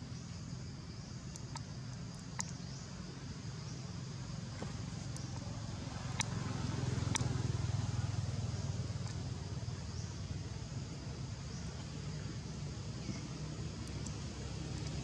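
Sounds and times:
distant traffic rumble: 0.0 - 15.0
faint sharp clicks: 1.2 - 2.7, 4.5 - 6.4, 7.0 - 7.4, 9.0 - 9.2, 13.8 - 15.0.

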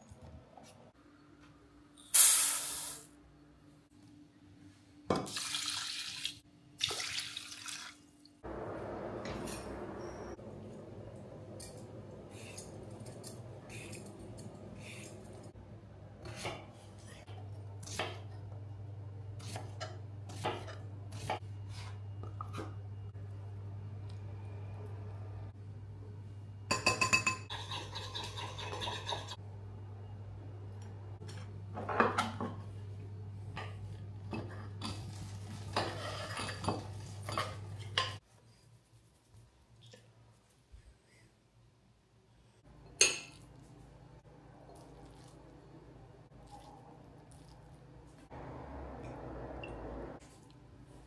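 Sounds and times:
steady low hum: 8.4 - 16.3.

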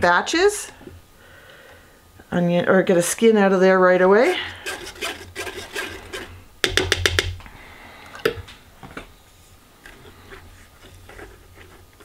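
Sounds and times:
wooden spoon knocking plastic strainer: 6.1 - 7.4.

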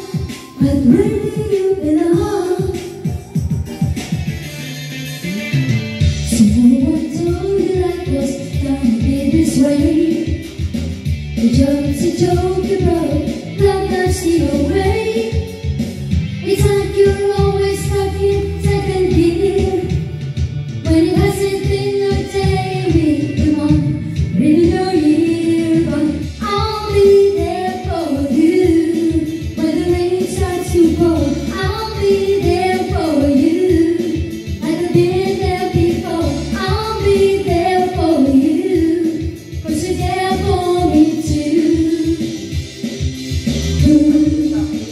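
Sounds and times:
woman singing pop song: 0.0 - 4.0, 6.2 - 15.7, 16.3 - 20.2, 20.8 - 42.7, 43.8 - 44.9
backing track with steady beat: 0.0 - 44.9.

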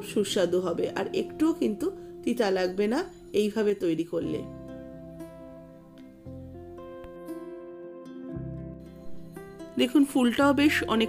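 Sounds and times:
plucked string instrument melody: 4.2 - 11.0.

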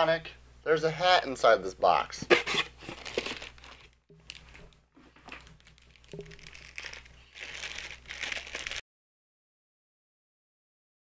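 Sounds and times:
plastic bag crinkling: 2.5 - 8.8.

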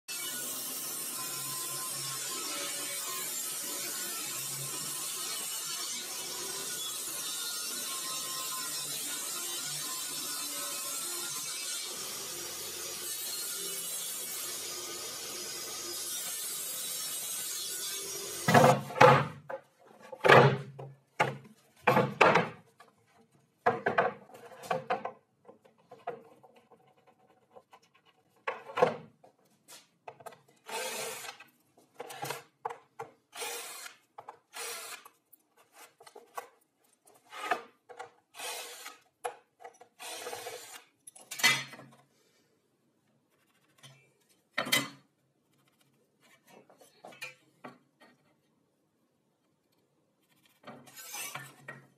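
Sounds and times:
wooden boards scraping and knocking: 18.5 - 22.7.

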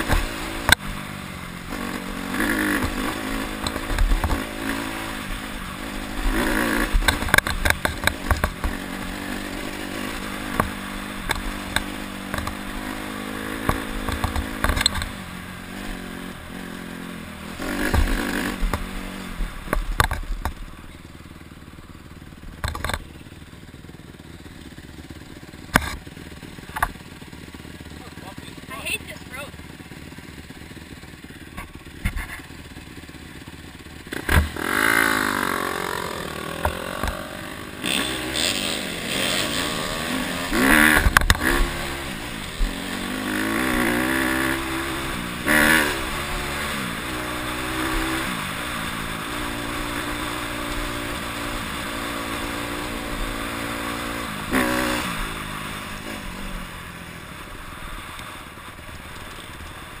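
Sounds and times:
dirt bike engine accelerating: 0.0 - 60.0
bike knocking over rough ground: 13.6 - 15.2.

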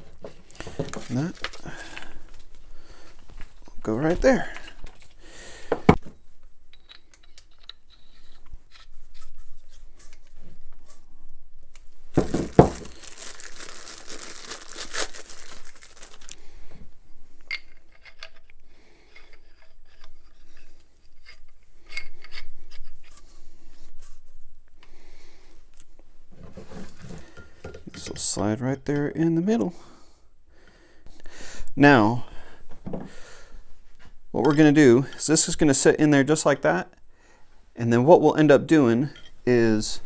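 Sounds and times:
plastic bags crinkling and tearing: 0.5 - 2.6, 12.2 - 16.4.

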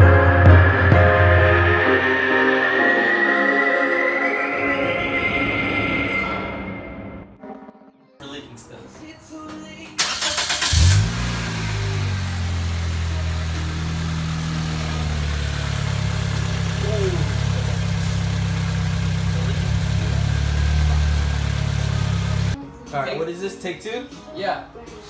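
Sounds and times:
engine starter cranking: 10.0 - 13.4
car engine idling: 10.0 - 22.6.

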